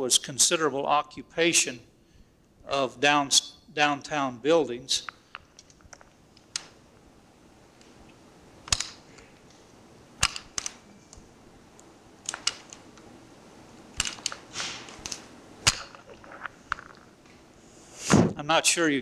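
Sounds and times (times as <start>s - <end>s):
faint steady hiss: 0.0s - 19.0s
sharp clicks and knocks: 5.0s - 6.8s, 8.6s - 9.6s, 10.2s - 13.1s, 13.9s - 17.4s.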